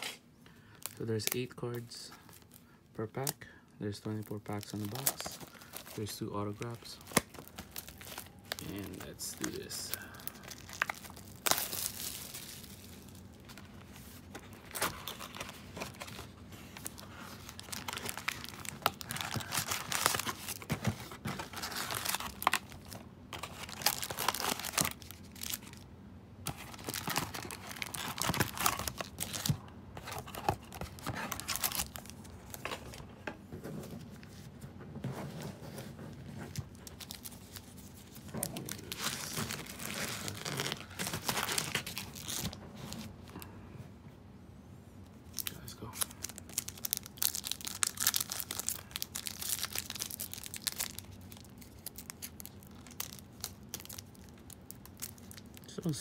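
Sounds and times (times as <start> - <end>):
foil packs crinkling: 0.6 - 25.8, 26.5 - 33.0, 36.2 - 43.4, 45.4 - 56.0.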